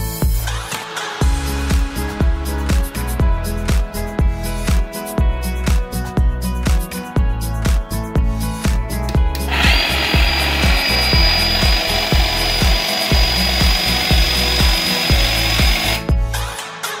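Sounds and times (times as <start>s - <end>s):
dance music with steady beat: 0.0s - 17.0s
hedge trimmer buzzing: 9.4s - 16.1s.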